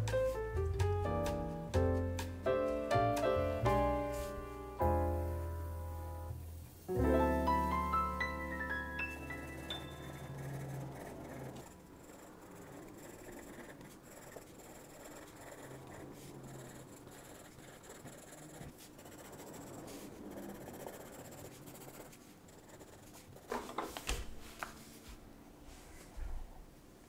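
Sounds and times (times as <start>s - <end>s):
pencil scratching on paper: 9.1s - 24.0s.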